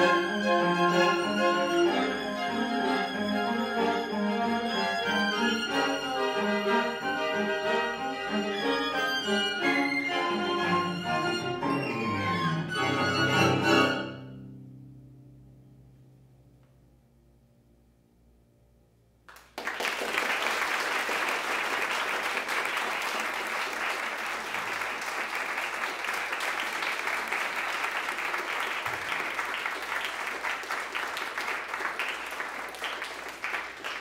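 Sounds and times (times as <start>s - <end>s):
audience applause: 19.3s - 34.0s.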